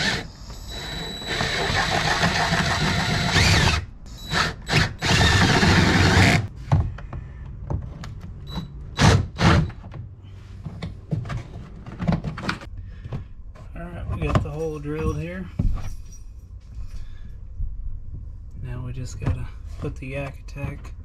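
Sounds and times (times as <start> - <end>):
cordless drill boring plastic: 0.0 - 6.4.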